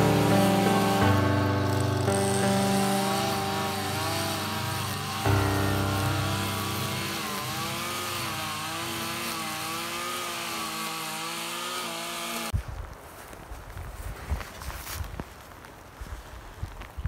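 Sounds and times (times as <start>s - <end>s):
engine running: 0.0s - 10.3s.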